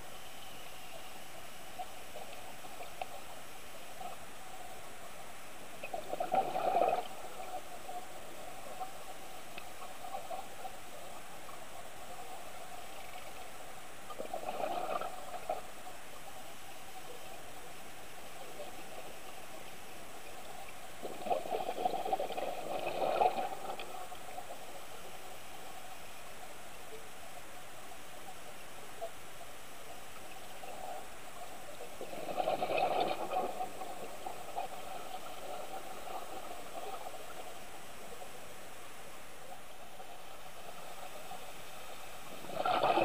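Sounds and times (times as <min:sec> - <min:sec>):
steady hiss: 0:00.0 - 0:43.0
gurgling underwater exhaust bubbles: 0:05.8 - 0:07.8, 0:14.1 - 0:15.8, 0:20.9 - 0:24.4, 0:31.9 - 0:37.4, 0:42.2 - 0:43.0.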